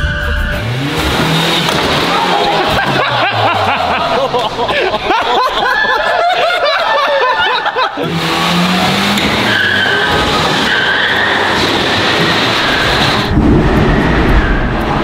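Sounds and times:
small engines revving: 0.4s - 6.0s, 6.7s - 15.0s
tyres squealing: 0.6s - 13.3s
people laughing: 2.0s - 9.1s.

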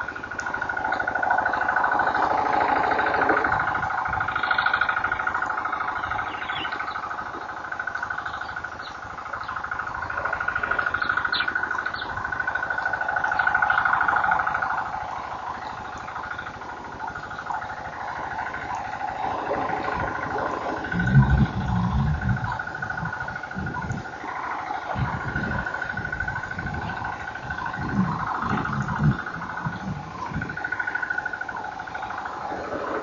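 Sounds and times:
insects buzzing: 0.0s - 33.0s.

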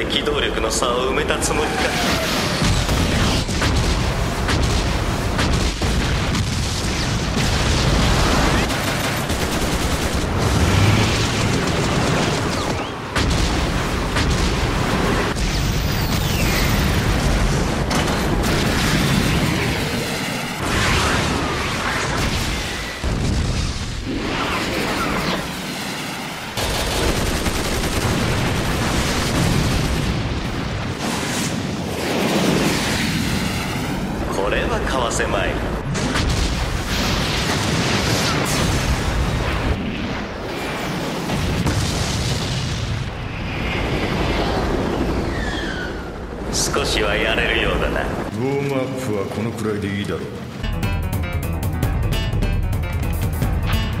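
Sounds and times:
explosions: 0.0s - 48.3s
rapid gunfire: 2.6s - 23.8s, 26.6s - 33.1s.

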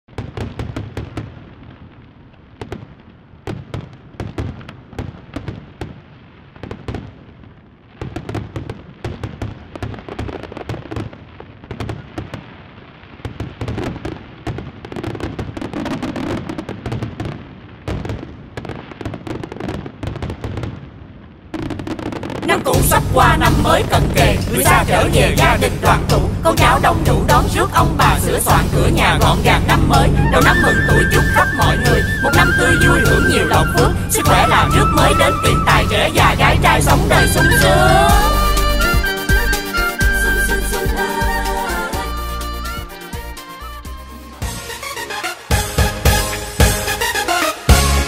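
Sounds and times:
fireworks bangs and pops: 0.1s - 40.1s, 44.4s - 48.0s.

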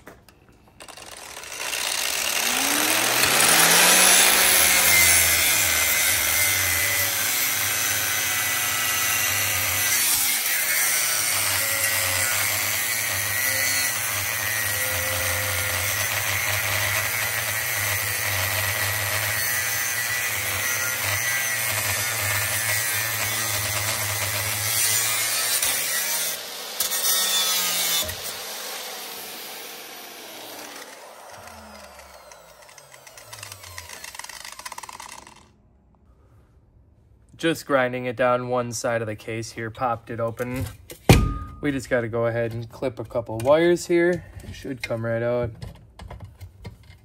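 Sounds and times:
angle grinder cutting steel: 0.8s - 35.5s
grinder spinning down: 0.8s - 35.6s.

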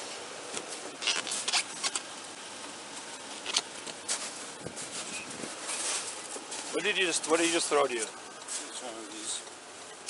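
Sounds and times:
clothing rustling on microphone: 2.9s - 7.1s.

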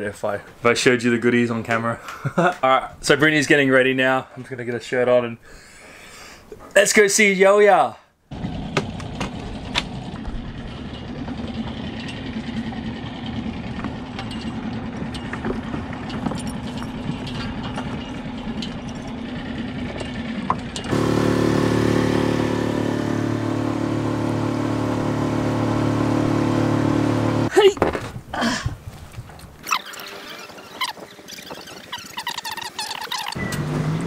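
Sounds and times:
outboard motor running: 8.3s - 27.5s.

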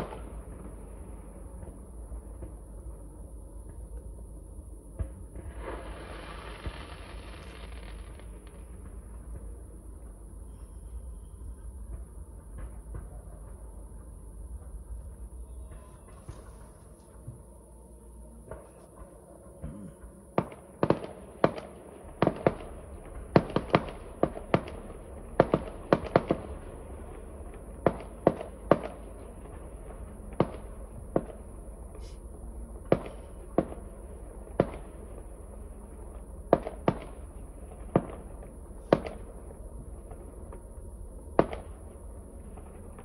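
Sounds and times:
fireworks bangs: 0.0s - 2.6s, 5.0s - 9.7s, 20.4s - 32.2s, 32.8s - 40.6s, 41.3s - 41.9s.

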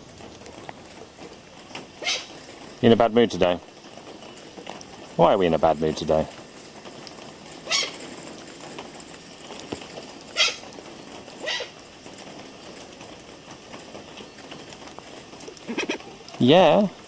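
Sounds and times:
steady background hiss: 0.0s - 17.0s
hornbill calls: 2.0s - 2.4s, 7.7s - 8.0s, 10.3s - 10.7s, 11.4s - 11.8s.

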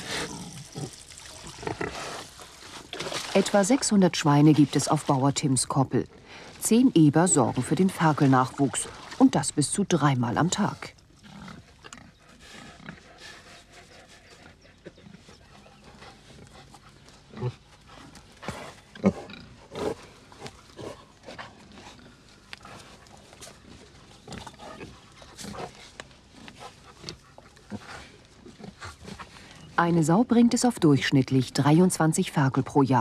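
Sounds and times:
pigs grunting: 0.0s - 3.3s, 11.2s - 29.7s.

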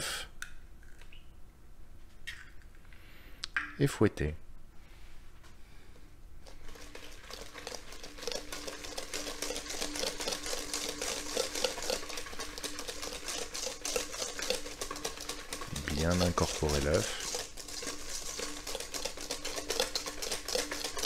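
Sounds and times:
whisk tapping metal bowl: 6.7s - 21.0s.

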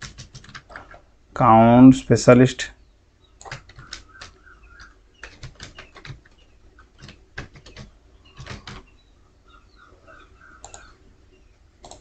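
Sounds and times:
keyboard keys clicking: 0.0s - 0.8s, 3.4s - 8.9s, 10.6s - 10.9s.

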